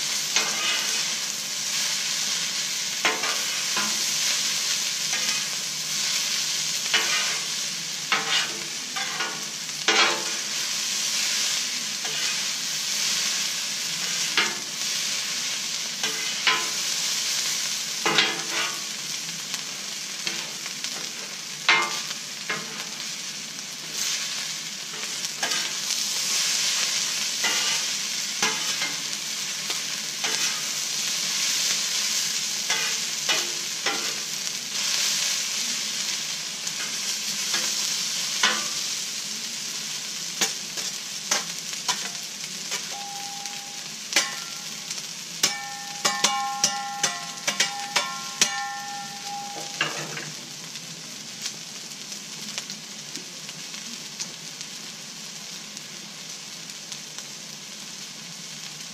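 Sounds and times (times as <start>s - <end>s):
food sizzling on a griddle: 0.0s - 58.9s
metal spatulas scraping a griddle: 0.2s - 1.9s, 5.1s - 5.6s, 6.9s - 10.6s, 12.0s - 13.4s, 16.0s - 16.8s, 18.0s - 18.9s, 24.0s - 26.8s, 27.4s - 29.2s, 30.2s - 30.8s, 32.7s - 34.3s, 36.8s - 38.8s, 40.4s - 42.9s, 44.1s - 44.7s, 45.4s - 50.3s.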